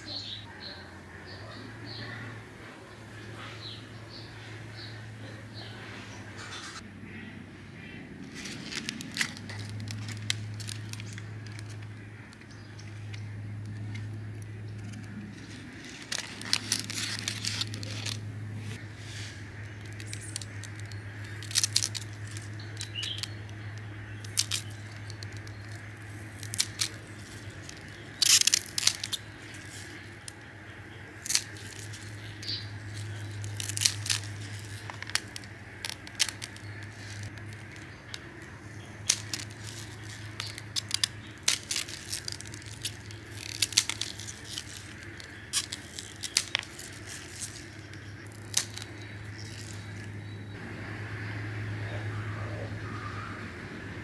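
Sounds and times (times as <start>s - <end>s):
low steady hum: 0.0s - 54.0s
leaves rustling: 8.0s - 54.0s
scissors snipping onion shoots: 19.6s - 30.4s, 31.1s - 50.1s.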